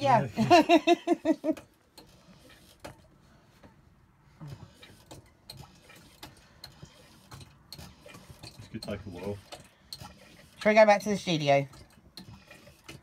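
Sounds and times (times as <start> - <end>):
small metal clicks and knocks: 4.6 - 13.0.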